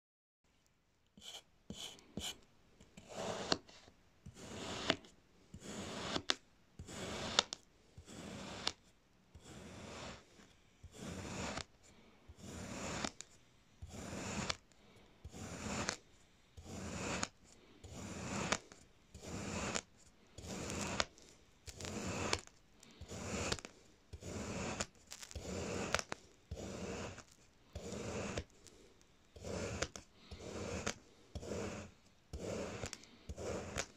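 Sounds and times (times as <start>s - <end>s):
blade scraping through kinetic sand: 1.2s - 33.9s.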